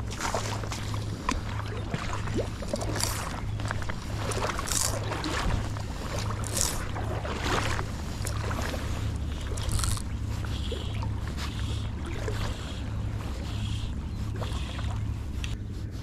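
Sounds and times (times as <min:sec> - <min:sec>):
low rumble: 0:00.0 - 0:16.0
line pulled off fly reel: 0:04.3 - 0:05.1, 0:09.5 - 0:10.1.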